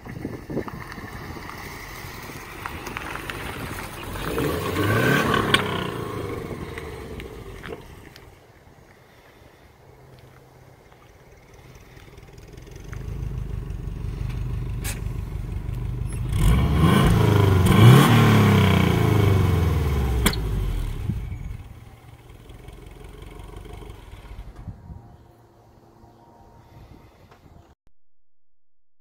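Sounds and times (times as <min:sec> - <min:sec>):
car engine revving: 0:01.8 - 0:08.4, 0:11.6 - 0:24.6.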